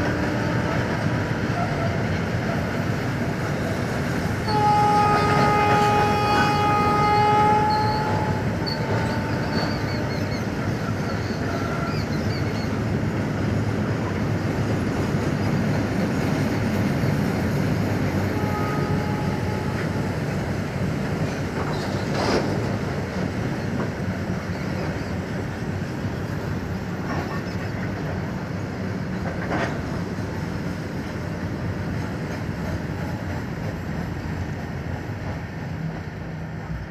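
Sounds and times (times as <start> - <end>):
train wheels rumbling on rails: 0.0 - 36.9
wheels clickety-clack: 19.7 - 28.4, 29.1 - 36.9.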